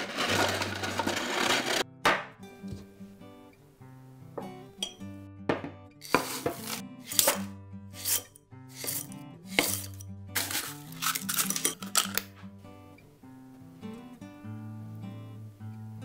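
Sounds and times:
crushed ice crunching: 0:00.0 - 0:01.8, 0:09.6 - 0:12.2
metal scoop digging into ice: 0:00.0 - 0:01.8, 0:06.0 - 0:12.3
background music: 0:00.0 - 0:16.0.

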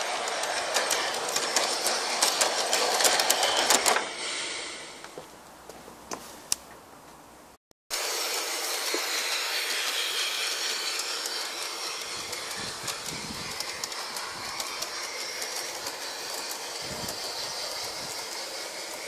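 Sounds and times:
wheels clicking over rail joints: 0:00.0 - 0:04.2, 0:08.8 - 0:19.0
model locomotive whirring: 0:00.0 - 0:05.2, 0:07.9 - 0:19.0.

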